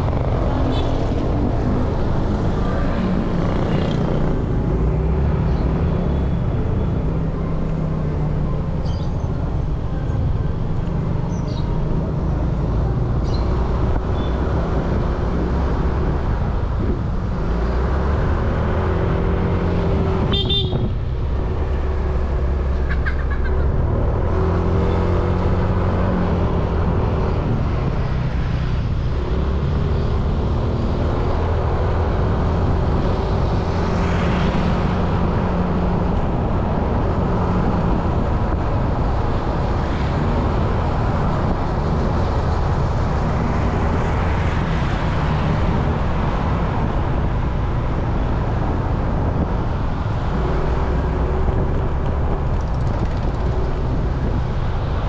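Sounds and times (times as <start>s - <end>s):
road noise: 0.0s - 55.0s
vehicle horn tooting: 20.3s - 20.9s.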